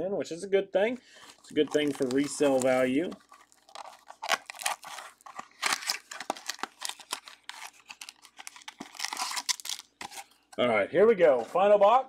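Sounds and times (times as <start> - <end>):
cellophane wrap crinkling and tearing: 1.1 - 10.4.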